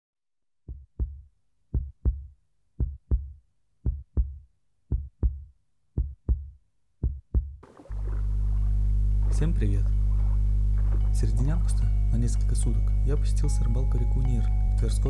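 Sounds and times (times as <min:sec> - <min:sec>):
heartbeat thumps: 0:00.7 - 0:11.7.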